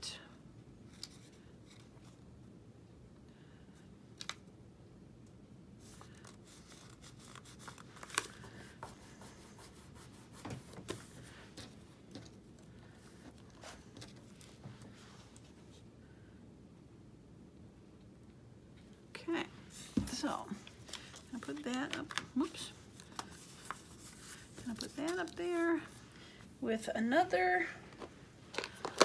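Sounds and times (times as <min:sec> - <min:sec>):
paper rustling and rubbing: 0:05.8 - 0:15.8, 0:19.7 - 0:26.0.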